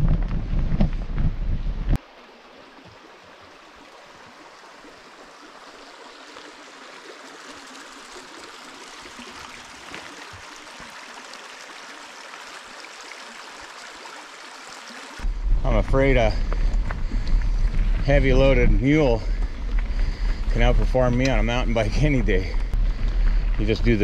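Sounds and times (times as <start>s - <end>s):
creek babbling over stones: 2.0s - 24.0s
wind buffeting microphone: 15.2s - 24.0s.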